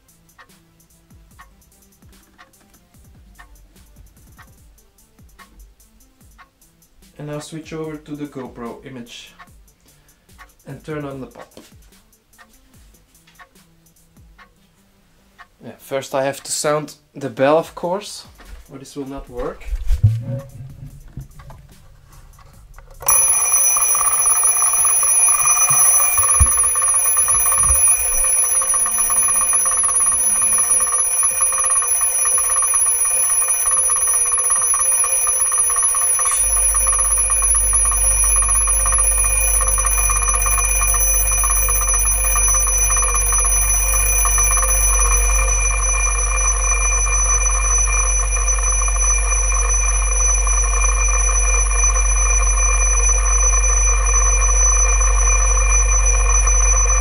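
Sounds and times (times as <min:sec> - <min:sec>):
alarm clock ringing: 0:23.0 - 0:57.0.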